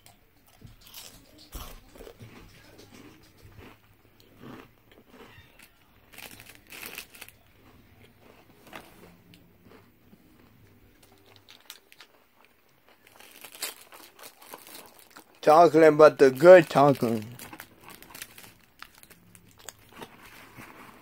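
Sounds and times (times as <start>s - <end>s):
wafer bar being chewed: 0.0s - 15.4s
plastic wrapper crinkling: 6.1s - 7.5s, 11.0s - 21.0s.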